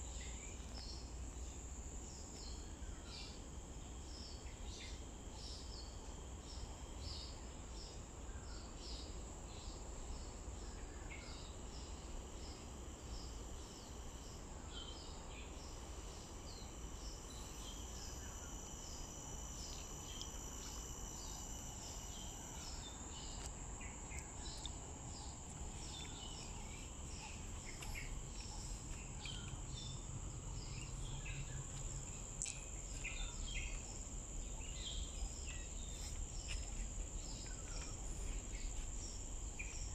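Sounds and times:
insects droning: 0.0s - 39.9s
low steady rumble: 19.6s - 39.9s.

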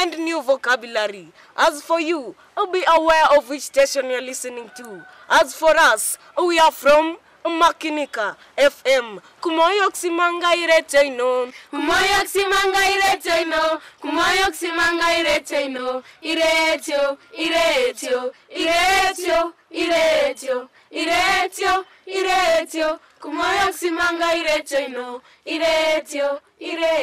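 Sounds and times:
children singing together: 11.8s - 27.0s.

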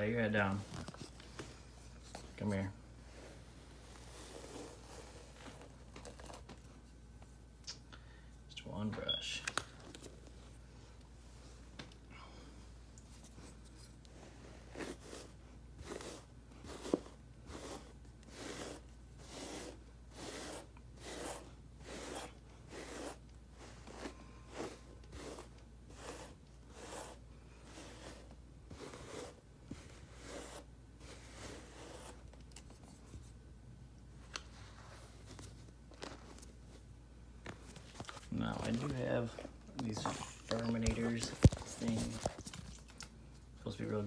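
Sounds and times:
brush scratching through fur: 3.2s - 5.8s, 13.4s - 32.2s.

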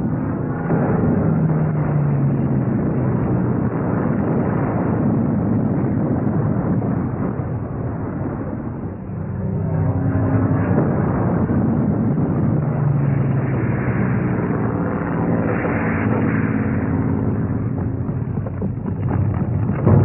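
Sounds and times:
explosions and rumble: 0.0s - 20.0s
propeller aircraft engines droning: 0.0s - 20.0s
sharp cracks: 15.4s - 20.0s.

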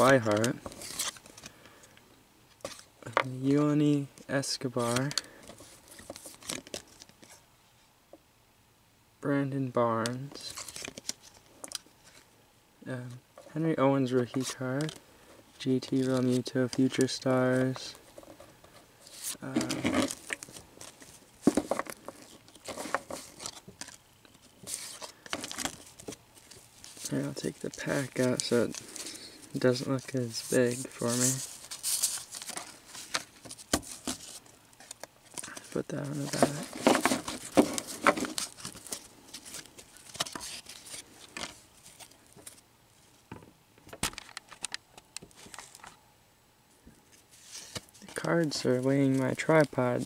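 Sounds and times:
paper cards rustling and snapping: 0.0s - 1.6s, 4.8s - 7.4s, 10.0s - 12.2s, 14.2s - 15.0s, 15.8s - 42.6s, 43.8s - 46.0s, 47.4s - 50.0s.

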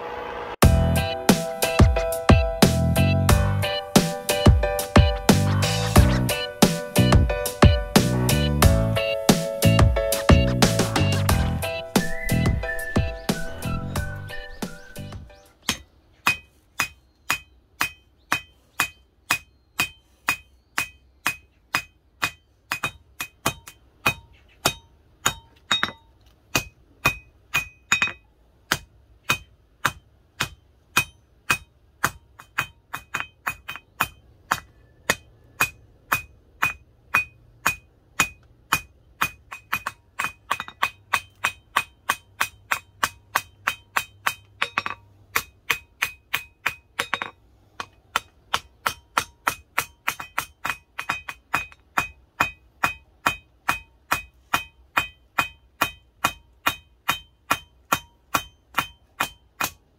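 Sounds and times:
hammer striking hot steel on anvil: 15.6s - 59.9s.

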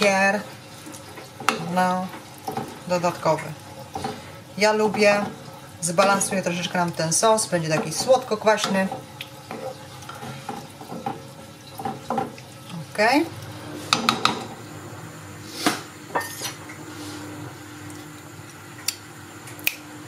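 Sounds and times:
wooden spoon stirring thick sauce: 0.9s - 12.8s
spoon scraping and knocking pan: 7.7s - 11.2s.

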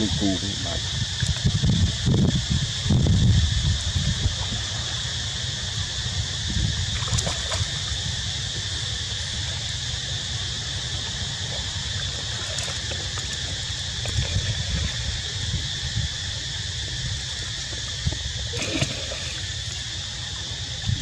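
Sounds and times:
wind rumble on microphone: 0.0s - 8.8s, 12.4s - 21.0s
steady high hiss: 0.0s - 21.0s
monkey swimming in water: 4.2s - 20.9s.

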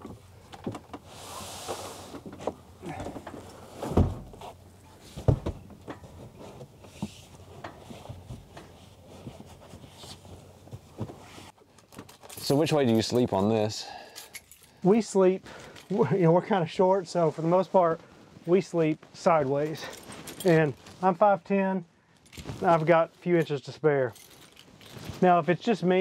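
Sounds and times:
bed rustling and scraping: 0.8s - 12.6s, 17.1s - 21.3s, 22.2s - 23.4s, 24.3s - 25.4s.

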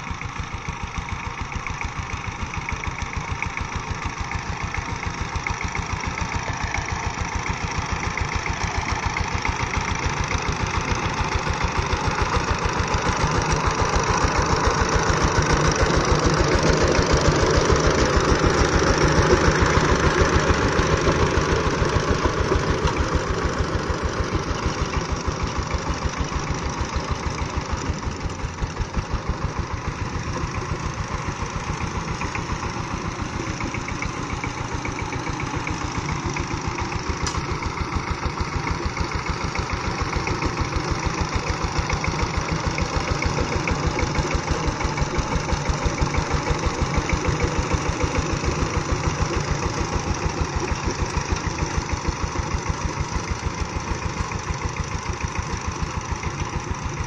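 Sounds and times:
diesel engine chugging: 0.0s - 57.0s
rotary tiller churning soil: 0.0s - 57.0s.

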